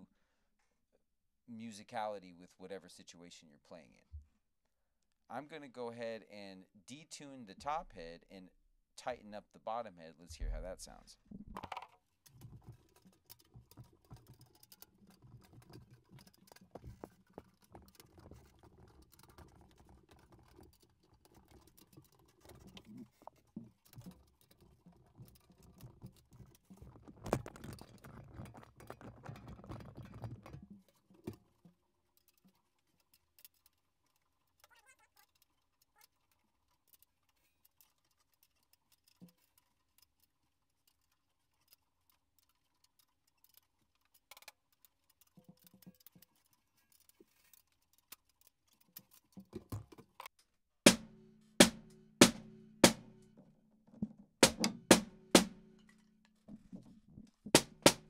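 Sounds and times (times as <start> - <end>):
sharp knock: 50.9 - 53.1, 54.4 - 55.6, 57.6 - 58.0
snare drum handling scrapes and taps: 50.9 - 58.0.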